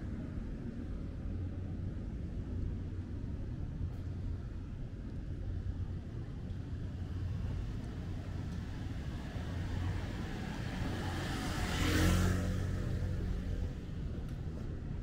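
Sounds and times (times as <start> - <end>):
street traffic rumble: 0.0 - 15.0
motor vehicle passing by: 6.8 - 14.6.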